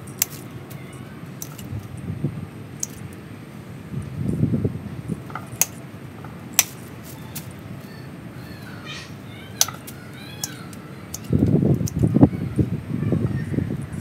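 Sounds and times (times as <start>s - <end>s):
pruning shears snipping: 0.0s - 1.9s, 2.8s - 3.2s, 5.3s - 7.7s, 9.5s - 12.1s
rustling leaves: 0.0s - 14.0s.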